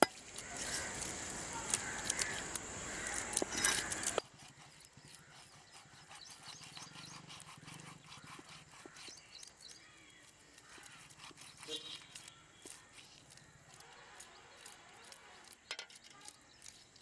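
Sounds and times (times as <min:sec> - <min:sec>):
knife scraping fish scales: 0:00.0 - 0:17.0.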